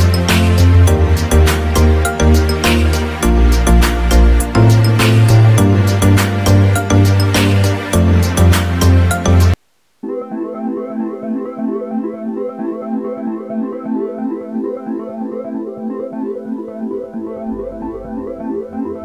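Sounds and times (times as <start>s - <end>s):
low bass beat: 0.0s - 9.6s
electronic keyboard music: 0.0s - 19.0s.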